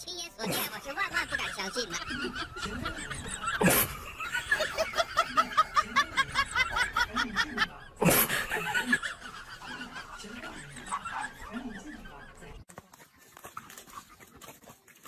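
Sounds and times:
person laughing: 0.4 - 12.5.

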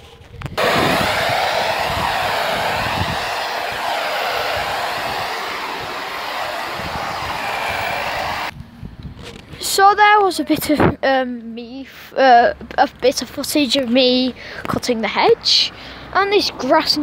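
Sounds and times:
electric hedge trimmer cutting: 0.6 - 8.5.

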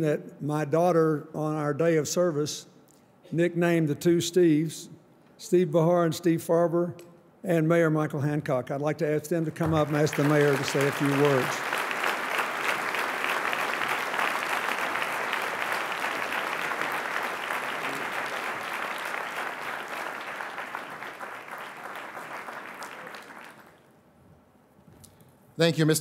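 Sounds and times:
audience applauding: 9.6 - 23.9.

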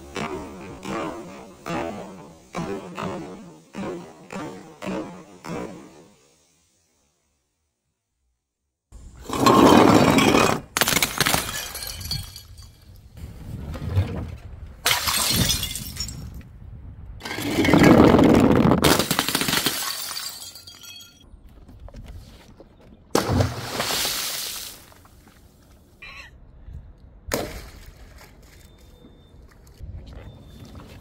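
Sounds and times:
glass bottles shattering: 9.4 - 12.9, 14.8 - 16.3, 18.8 - 21.2
falling glass shards tinkling: 11.4 - 12.9, 19.6 - 21.2.

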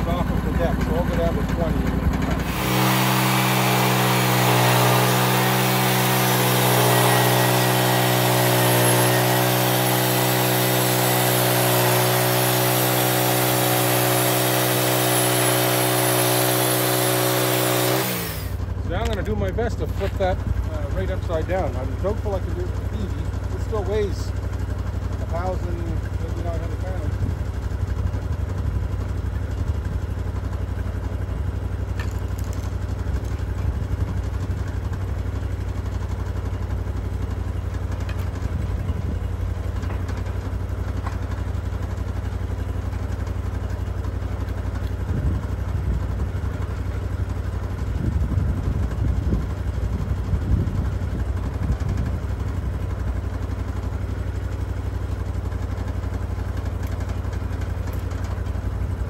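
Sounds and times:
gasoline engine idling: 0.0 - 2.7, 18.4 - 59.0.

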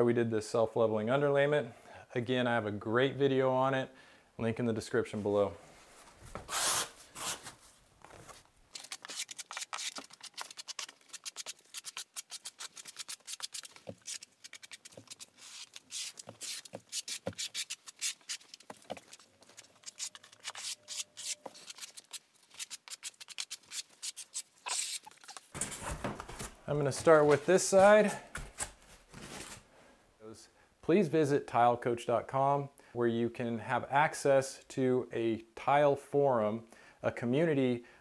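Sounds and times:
trowel scraping mortar: 8.8 - 25.6.

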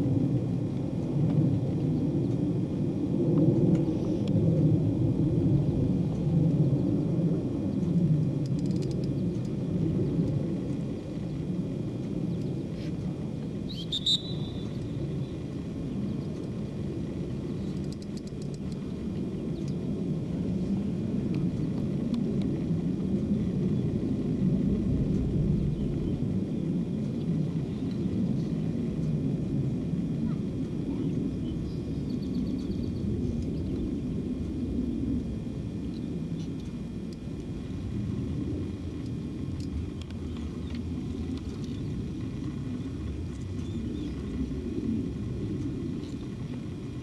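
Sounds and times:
low outdoor rumble: 0.0 - 47.0
bird trilling: 13.7 - 15.0
high-pitched chirp: 13.7 - 15.0.

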